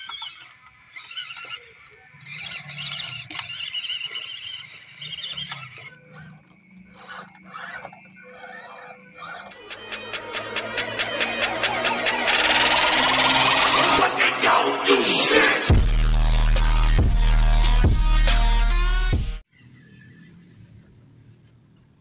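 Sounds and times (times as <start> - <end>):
small electric motors whining: 0.0 - 19.2.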